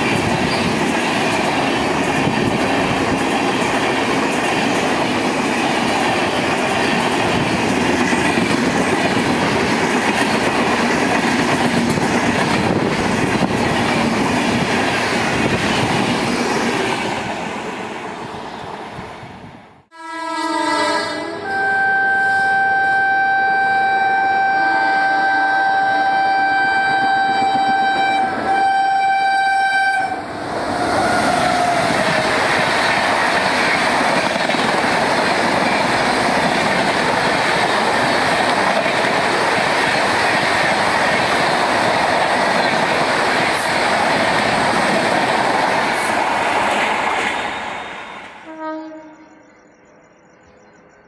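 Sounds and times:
wheels clattering on rails: 0:00.0 - 0:17.2, 0:31.0 - 0:48.0
train rushing through: 0:00.0 - 0:19.9, 0:20.9 - 0:48.7
locomotive horn blast: 0:19.9 - 0:30.3, 0:48.4 - 0:49.6.

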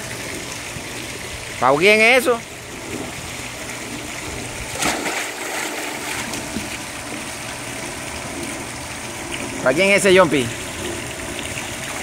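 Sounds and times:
water sloshing: 0:02.4 - 0:12.0
child splashing into pool: 0:04.7 - 0:06.9.

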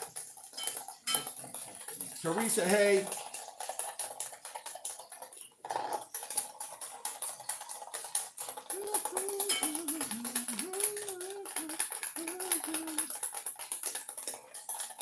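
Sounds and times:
wire whisk clicking in metal bowl: 0:06.2 - 0:15.0
person humming a tune: 0:08.7 - 0:13.1.

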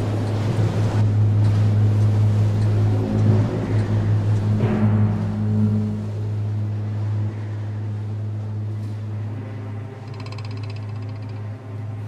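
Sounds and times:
rapid high-pitched buzzing: 0:10.0 - 0:11.5.

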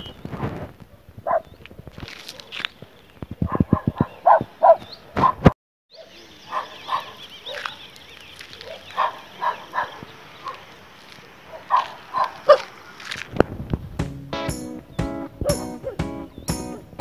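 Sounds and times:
dogs barking: 0:01.2 - 0:01.5, 0:03.4 - 0:07.8, 0:08.6 - 0:10.7, 0:11.5 - 0:12.7.

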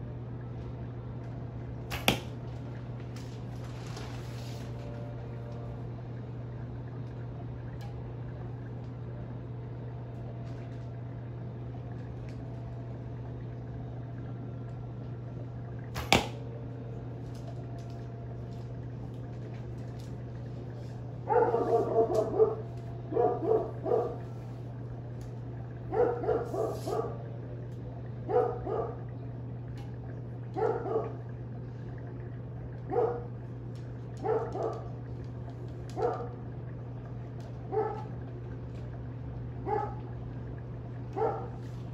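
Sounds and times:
steady low hum: 0:00.0 - 0:41.9
bow snapping as arrow shot: 0:01.9 - 0:02.4, 0:16.0 - 0:16.4
dog barking: 0:21.3 - 0:24.2, 0:25.9 - 0:27.2, 0:28.3 - 0:29.0, 0:30.6 - 0:31.2, 0:32.9 - 0:33.3, 0:34.2 - 0:34.9, 0:36.0 - 0:36.4, 0:37.7 - 0:38.1, 0:39.6 - 0:40.0, 0:41.2 - 0:41.6.

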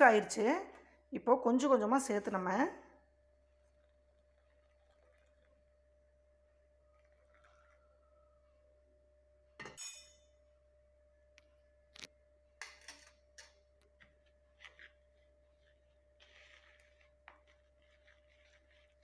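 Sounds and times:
spoon stirring and scraping: 0:03.5 - 0:05.9, 0:06.8 - 0:08.1, 0:12.8 - 0:19.0
metal clinking against bowl: 0:09.6 - 0:10.3.

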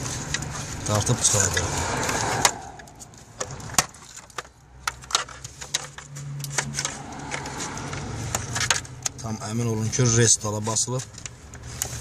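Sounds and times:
plastic connector clicks and rattles: 0:03.4 - 0:09.3.

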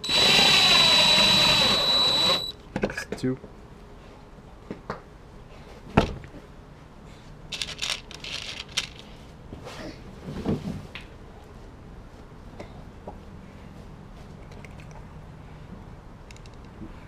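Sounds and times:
drill knocking on table: 0:00.0 - 0:02.5
screws rattling in plastic box: 0:07.5 - 0:09.1.

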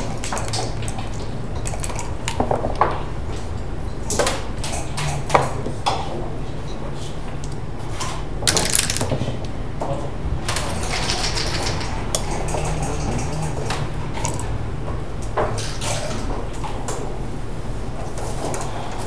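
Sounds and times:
steady low hum: 0:00.0 - 0:19.0
game pieces clicking on board: 0:08.5 - 0:09.1, 0:10.6 - 0:13.5.

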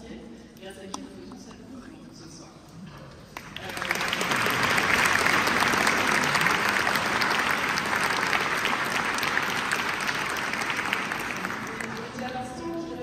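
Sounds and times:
audience applauding in a church: 0:03.4 - 0:12.6.

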